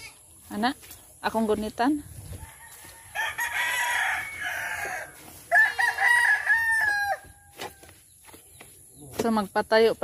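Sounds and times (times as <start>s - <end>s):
rooster crowing: 2.4s - 7.9s.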